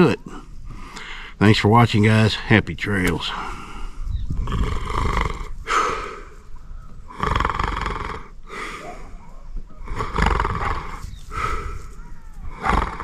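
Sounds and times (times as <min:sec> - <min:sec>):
man breathing heavily: 0:00.2 - 0:01.4, 0:03.3 - 0:07.4, 0:08.4 - 0:13.0.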